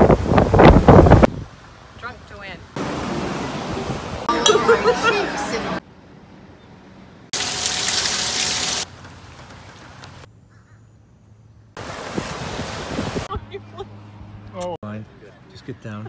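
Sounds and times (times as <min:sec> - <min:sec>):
wind on microphone: 0:00.0 - 0:01.6, 0:12.0 - 0:13.5
surf washing onto beach: 0:11.8 - 0:13.3.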